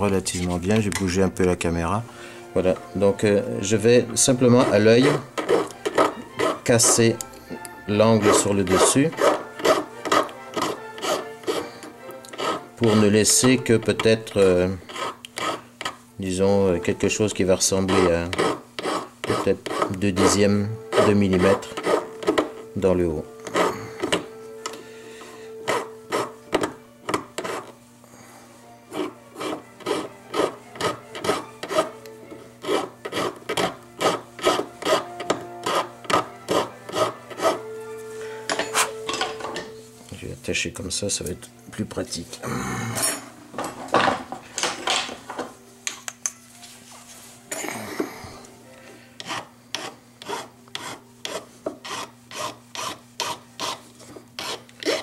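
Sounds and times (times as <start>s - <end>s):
file rasping on metal: 4.2s - 7.1s, 8.1s - 16.0s, 17.6s - 22.7s, 23.4s - 24.2s, 25.6s - 27.8s, 28.9s - 32.0s, 32.6s - 37.7s, 49.2s - 55.0s.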